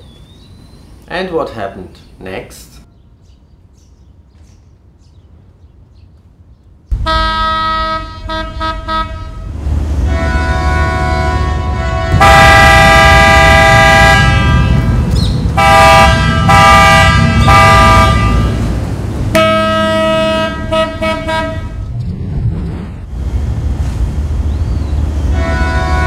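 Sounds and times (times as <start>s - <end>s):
steady low rumble: 6.8s - 19.4s
ship horn blasts: 6.9s - 22.0s, 25.1s - 26.0s.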